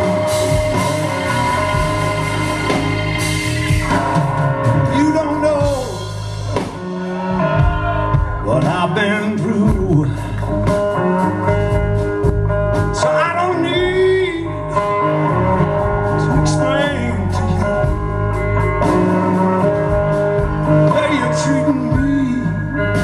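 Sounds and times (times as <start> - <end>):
bass guitar: 0.0 - 23.0
drums: 0.0 - 23.0
electric guitar: 0.0 - 23.0
man singing: 4.7 - 6.1, 7.1 - 10.8, 12.9 - 15.0, 16.1 - 18.0, 20.4 - 23.0.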